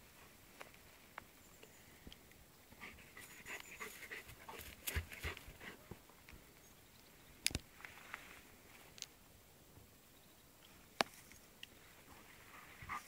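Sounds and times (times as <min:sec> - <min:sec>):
dog panting: 0:02.8 - 0:05.8.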